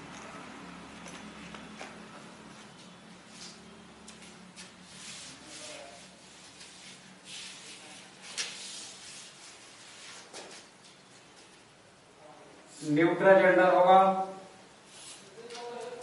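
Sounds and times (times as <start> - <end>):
chalk scratching on blackboard: 4.6 - 10.3.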